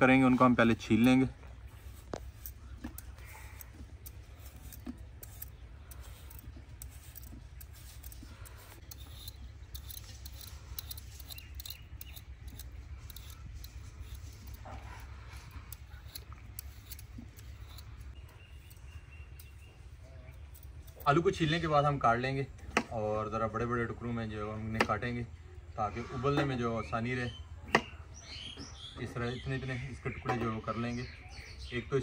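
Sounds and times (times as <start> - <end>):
blade scraping potato skin: 0.4 - 19.7.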